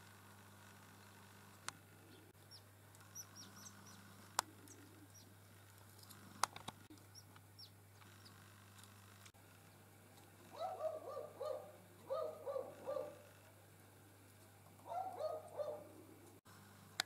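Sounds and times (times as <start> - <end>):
birds chirping: 2.0 - 8.4, 10.5 - 13.3, 14.8 - 16.3.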